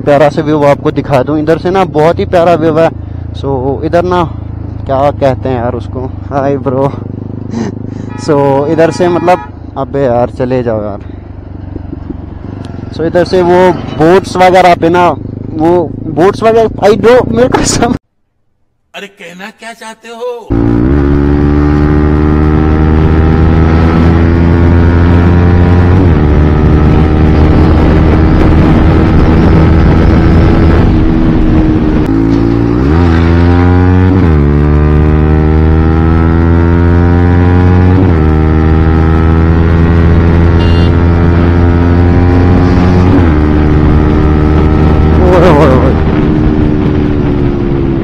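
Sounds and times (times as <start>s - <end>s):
motorcycle engine revving through gears: 20.5s - 48.0s.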